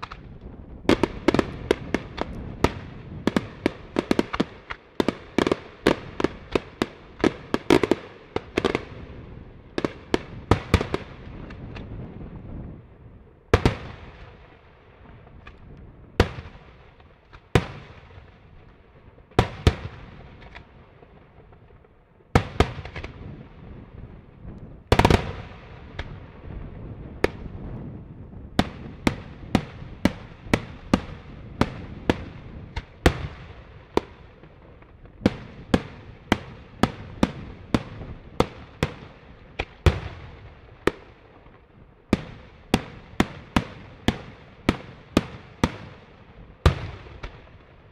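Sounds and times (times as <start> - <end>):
fireworks bursting with sharp bangs: 0.0 - 47.9.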